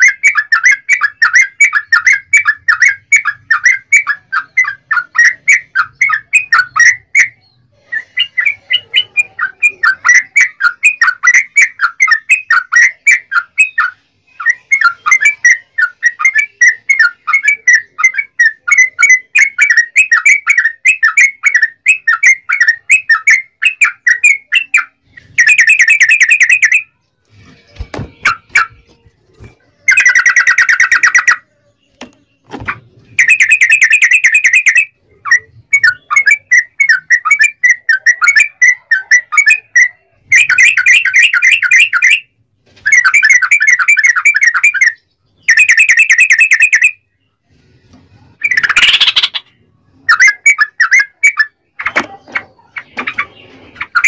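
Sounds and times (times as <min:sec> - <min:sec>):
bird singing rolling song: 0:00.0 - 0:54.0.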